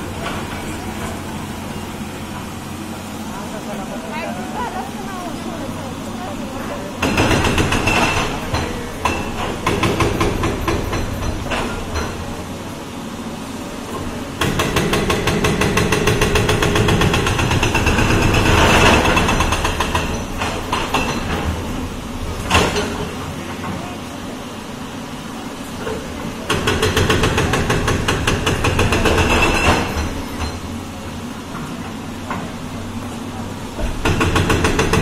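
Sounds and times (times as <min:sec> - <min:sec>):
diesel engine under load: 0:00.0 - 0:35.0
hammering blows on concrete: 0:07.0 - 0:12.3, 0:14.4 - 0:21.7, 0:26.5 - 0:30.6, 0:33.8 - 0:35.0.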